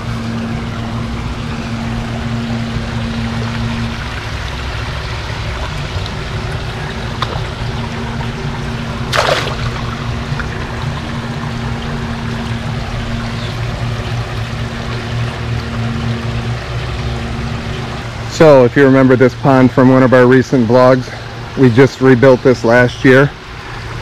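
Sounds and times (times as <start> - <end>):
steady low hum: 0.0 - 24.0
waterfall trickling: 0.0 - 24.0
fish splashing into pond: 2.8 - 13.3.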